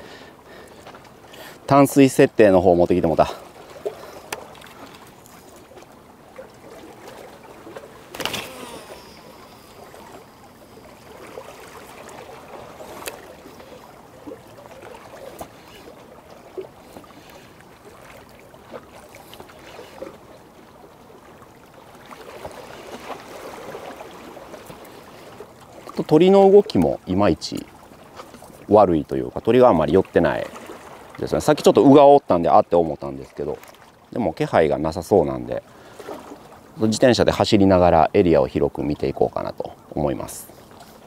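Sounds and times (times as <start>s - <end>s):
small waves lapping: 0.0s - 41.0s
light knocks and splashes: 2.8s - 32.0s, 32.7s - 34.1s
sharp splash: 6.7s - 10.2s.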